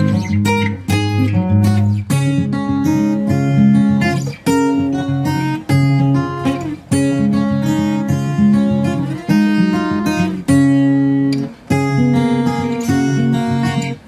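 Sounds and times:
acoustic guitar chords ringing: 0.0s - 14.0s.

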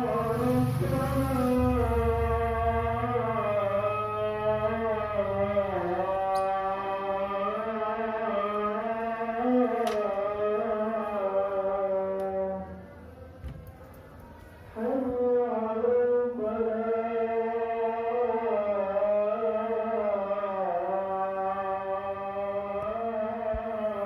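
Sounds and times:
slow melody over a drone: 0.0s - 13.4s.

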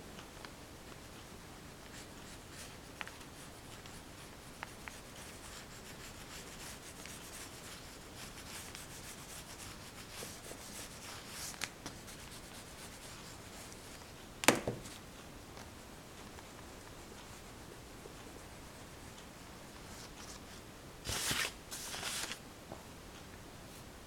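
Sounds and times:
oil pastel scratching on paper: 1.9s - 14.0s
sharp knock: 14.4s - 14.9s.

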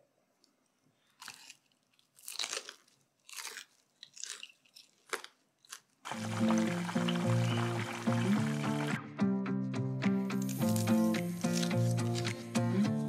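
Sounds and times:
crunchy chewing of fried chicken: 1.0s - 8.6s, 10.5s - 12.4s
music: 6.1s - 13.0s.

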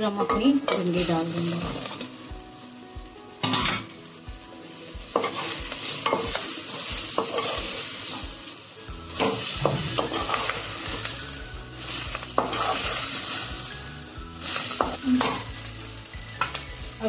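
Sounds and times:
vegetables sizzling in oil: 0.0s - 17.0s
spatula knocking and scraping pan: 9.2s - 10.6s, 12.3s - 13.0s.

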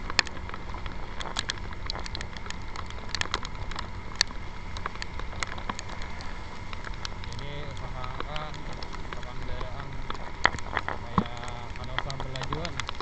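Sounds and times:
motor scooter riding: 0.0s - 13.0s
raindrops ticking on camera: 0.0s - 13.0s
wind rumble: 0.0s - 13.0s.

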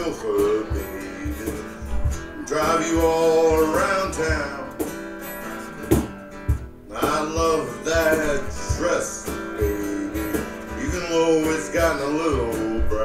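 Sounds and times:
live band music with guitar: 0.0s - 13.0s
sharp drum hit: 0.7s - 5.0s, 5.8s - 11.6s.

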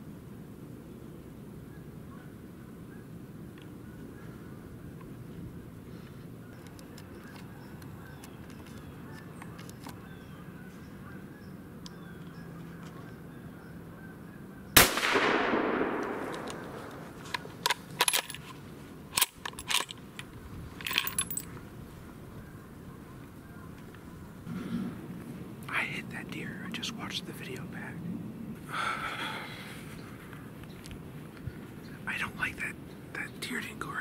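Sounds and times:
rifle shot echoing: 14.8s - 17.6s
rifle action metallic clicks: 14.8s - 21.5s.

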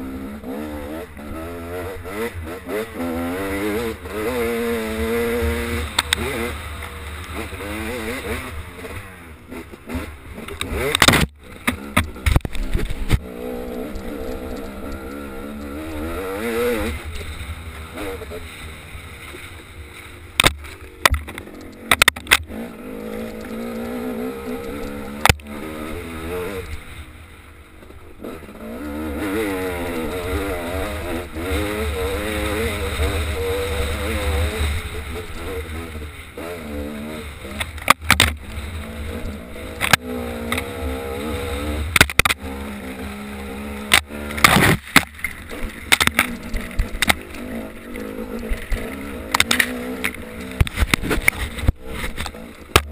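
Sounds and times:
dirt bike engine revving: 0.0s - 52.9s.

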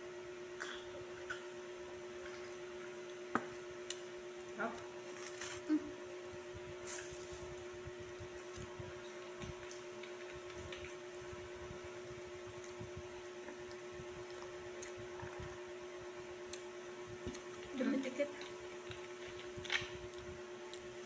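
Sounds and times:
steady background hum: 0.0s - 21.0s
chewing and mouth sounds: 8.1s - 11.0s, 12.5s - 15.8s, 16.4s - 21.0s.

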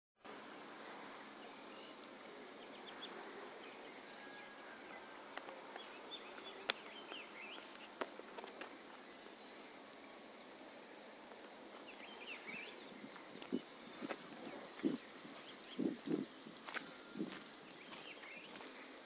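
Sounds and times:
birds chirping: 0.3s - 19.0s.

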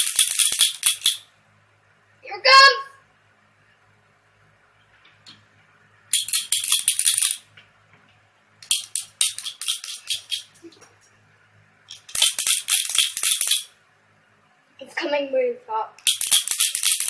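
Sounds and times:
marble rattling in shaken bottle: 0.0s - 1.2s, 6.2s - 7.5s, 8.6s - 11.0s, 11.9s - 13.7s, 16.0s - 17.0s.

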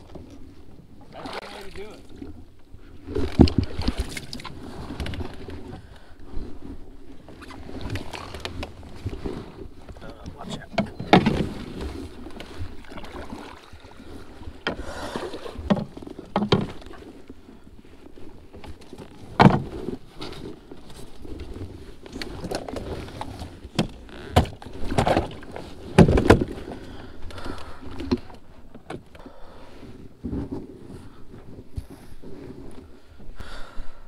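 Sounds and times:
water swishing under paddle strokes: 0.0s - 34.0s
paddle knocking against hull: 9.8s - 17.2s, 18.6s - 20.0s, 22.2s - 26.8s.

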